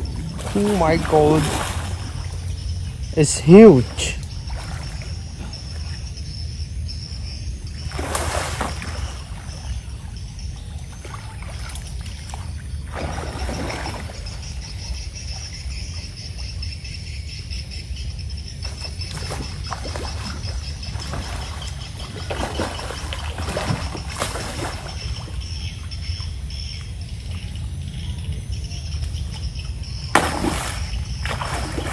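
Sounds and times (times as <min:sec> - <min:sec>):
fish splashing water: 0:00.0 - 0:02.7, 0:07.8 - 0:09.8, 0:10.7 - 0:14.9, 0:18.7 - 0:25.5, 0:30.0 - 0:31.9.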